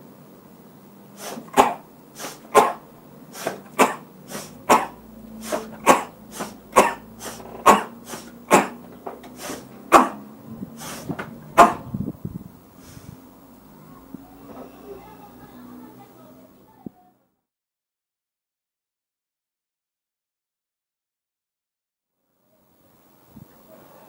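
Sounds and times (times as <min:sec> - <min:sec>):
forceful hissing breaths: 0:01.0 - 0:11.9, 0:12.7 - 0:15.0.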